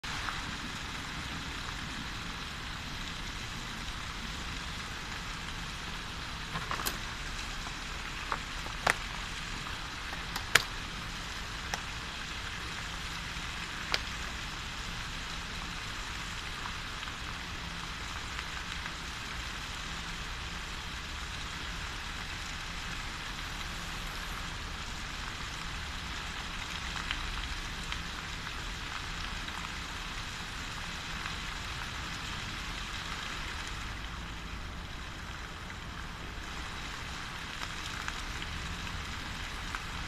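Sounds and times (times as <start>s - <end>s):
fountain water splashing: 0.1s - 40.0s
sharp clicks and knocks: 6.5s - 7.1s, 10.1s - 10.7s.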